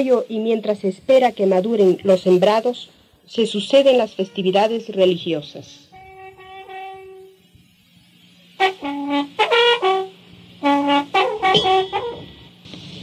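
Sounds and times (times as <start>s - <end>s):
faint steady hum: 0.0s - 13.0s
cane trumpet notes: 3.8s - 5.0s, 5.6s - 7.6s, 8.5s - 12.6s.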